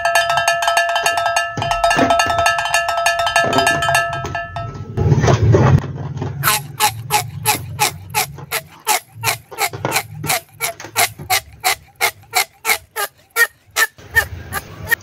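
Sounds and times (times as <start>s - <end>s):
balloon squeaking under fingers: 6.4s - 15.0s.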